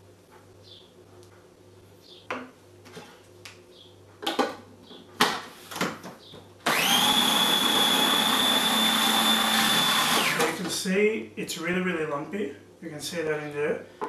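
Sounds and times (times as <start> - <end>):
food processor motor whining: 6.7 - 10.6.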